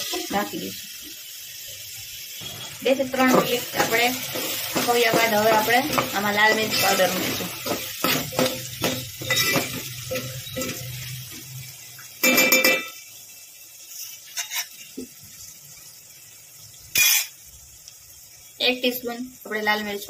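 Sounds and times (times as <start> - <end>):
ringing clang of a pot: 9.2 - 10.8, 12.2 - 13.0
metal ladle scraping a pot: 14.3 - 14.8.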